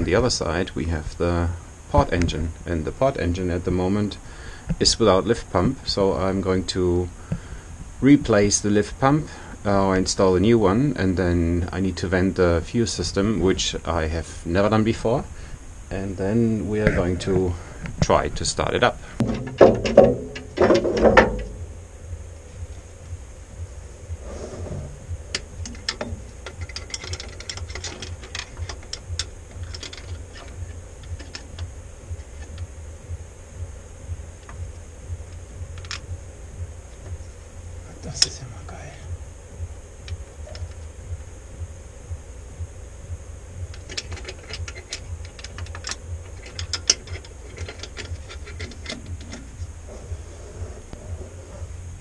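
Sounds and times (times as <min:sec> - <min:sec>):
steady low hum: 0:00.0 - 0:52.0
small metallic clicks: 0:25.3 - 0:32.7, 0:35.3 - 0:36.1, 0:43.7 - 0:49.5.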